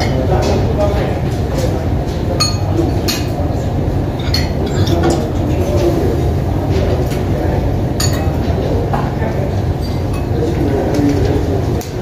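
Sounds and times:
dining room hum: 0:00.0 - 0:12.0
cutlery clinking against dishes: 0:02.2 - 0:03.4, 0:04.2 - 0:05.9, 0:08.0 - 0:08.5.

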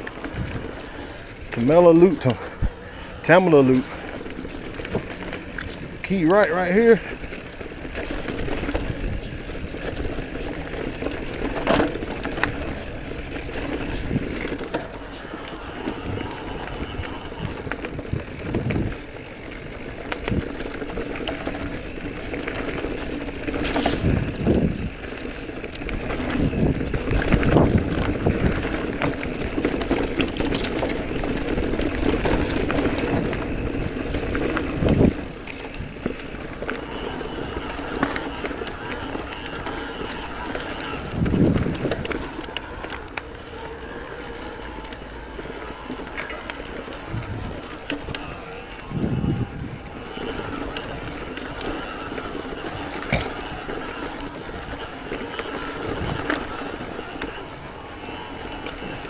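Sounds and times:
bike rattling over bumps: 0:00.0 - 0:59.0
tyres rolling over dirt: 0:00.0 - 0:59.0.

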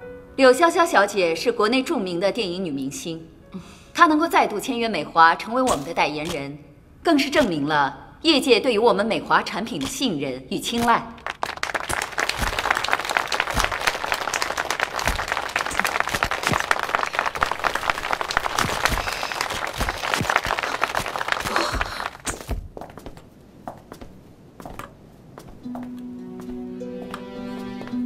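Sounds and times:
crowd applauding: 0:11.2 - 0:22.3.

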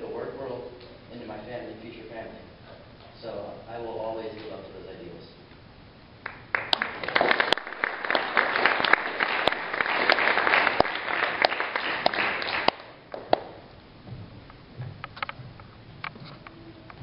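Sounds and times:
audience applause: 0:06.2 - 0:13.4
stray claps: 0:06.2 - 0:13.7.

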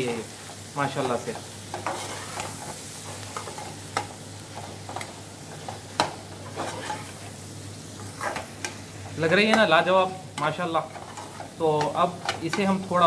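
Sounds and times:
liver sizzling in pot: 0:00.0 - 0:13.0.

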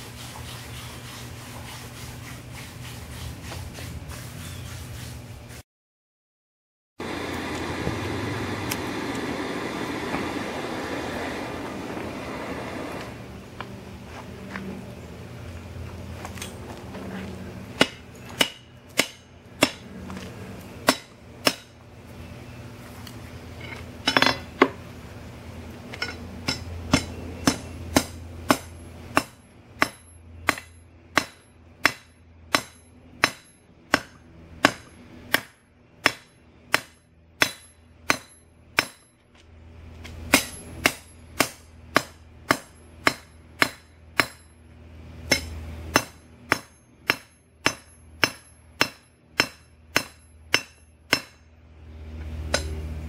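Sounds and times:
hammer ringing on anvil: 0:26.0 - 0:35.0, 0:45.3 - 0:51.4.

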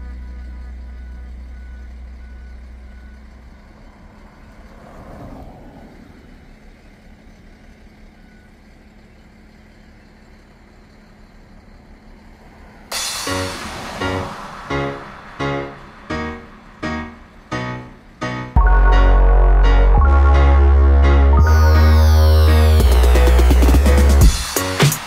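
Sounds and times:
low traffic rumble: 0:00.0 - 0:25.0
vehicle passing: 0:03.4 - 0:07.3, 0:12.0 - 0:24.4
background music: 0:13.0 - 0:25.0.

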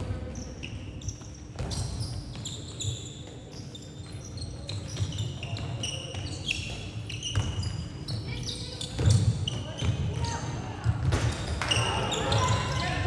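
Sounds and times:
shoes squeaking on hall floor: 0:00.0 - 0:13.0
ball bouncing on court: 0:01.1 - 0:03.4, 0:04.7 - 0:12.6.

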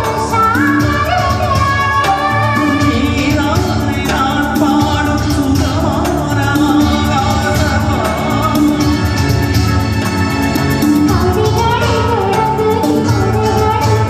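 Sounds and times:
woman singing: 0:00.0 - 0:09.2, 0:10.8 - 0:14.0
man singing: 0:00.0 - 0:09.6
small band with electronic keyboard: 0:00.0 - 0:14.0.

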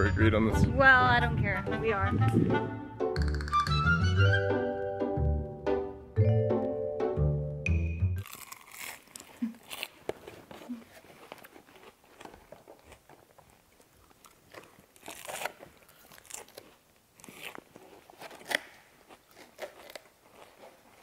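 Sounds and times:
crunchy bites and chewing: 0:08.2 - 0:21.0.

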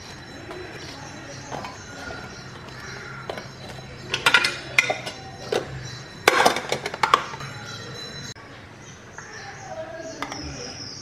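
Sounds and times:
steel dishes clinking: 0:01.5 - 0:07.8.

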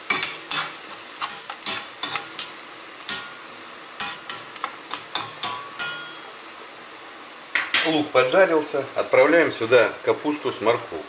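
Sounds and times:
metal spoon scraping a pan: 0:00.0 - 0:03.4, 0:04.0 - 0:06.3
onions sizzling in a pan: 0:00.0 - 0:11.0.

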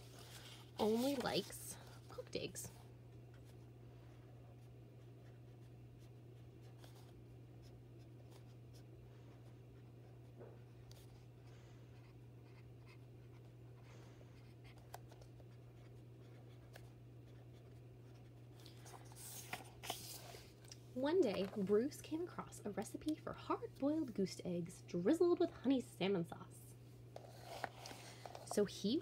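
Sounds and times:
paper card rustling: 0:00.0 - 0:02.0, 0:18.6 - 0:20.6, 0:21.2 - 0:21.9, 0:27.2 - 0:28.7
low steady hum: 0:00.0 - 0:29.0.

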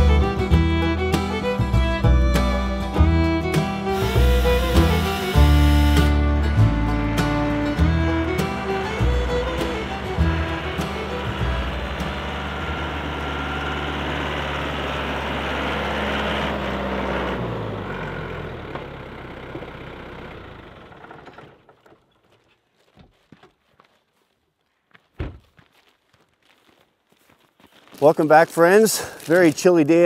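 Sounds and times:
tractor engine running: 0:00.0 - 0:22.4
short thump: 0:25.2 - 0:25.5.

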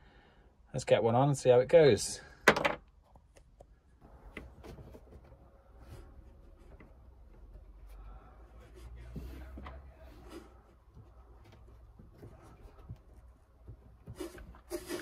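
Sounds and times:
wood and tools clicking and knocking: 0:02.4 - 0:07.8.

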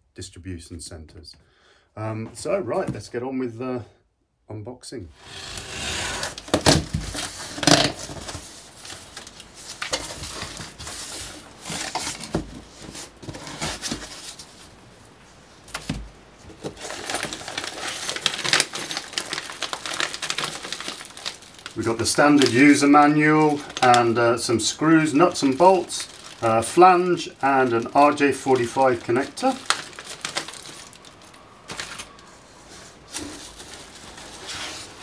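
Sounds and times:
packing foam handled: 0:05.2 - 0:14.8, 0:15.6 - 0:35.0
plastic bags rustling: 0:05.2 - 0:35.0
packing tape slit: 0:05.3 - 0:08.4
knocks and crinkles: 0:06.2 - 0:35.0.

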